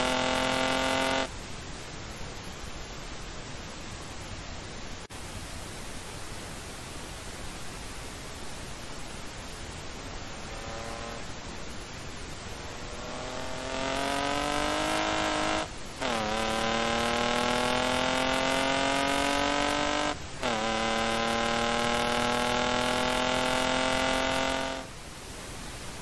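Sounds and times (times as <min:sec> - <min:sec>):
car engine accelerating: 0:00.0 - 0:01.3, 0:10.4 - 0:11.3, 0:12.6 - 0:24.9
gear upshifts: 0:12.6 - 0:24.9.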